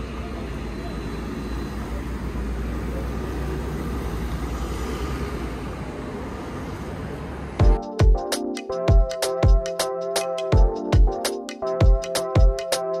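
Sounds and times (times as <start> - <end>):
electronic music with heavy bass: 7.6 - 13.0.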